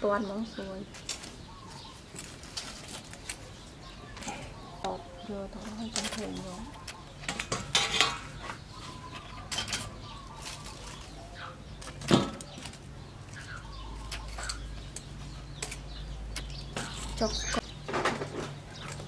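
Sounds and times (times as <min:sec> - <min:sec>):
metal tongs scraping a wok: 0:07.4 - 0:08.5.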